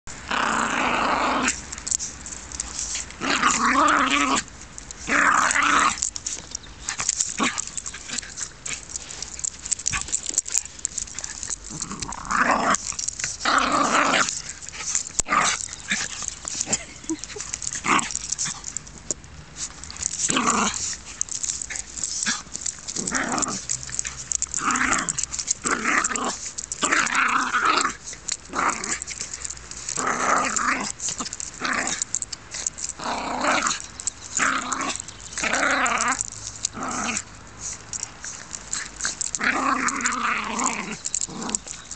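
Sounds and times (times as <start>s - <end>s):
dogs growling and play-fighting: 0.1s - 41.9s.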